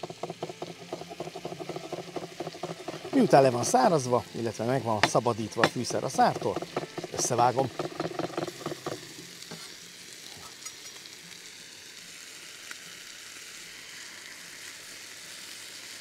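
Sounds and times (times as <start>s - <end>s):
knife chopping on wooden board: 0.0s - 3.4s, 5.0s - 9.6s
steaks sizzling in a frying pan: 0.0s - 16.0s.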